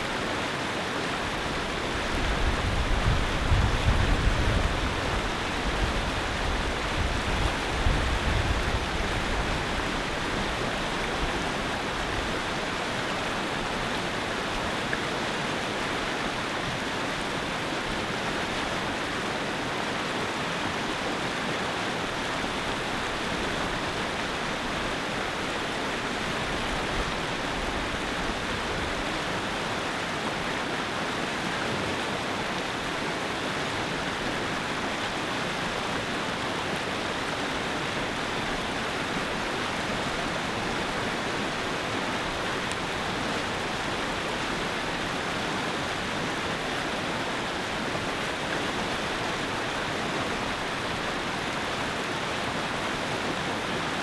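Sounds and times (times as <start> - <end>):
whitewater rushing over rocks: 0.0 - 54.0.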